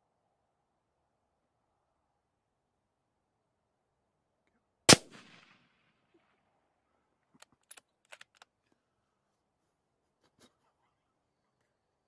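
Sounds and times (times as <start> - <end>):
gunshot echo: 4.9 - 5.7.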